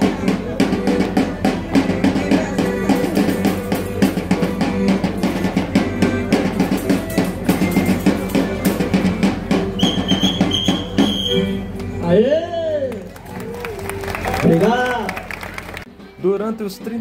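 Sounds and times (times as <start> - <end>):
accordion chords: 0.0 - 17.0
shrill whistle blasts: 9.7 - 11.6.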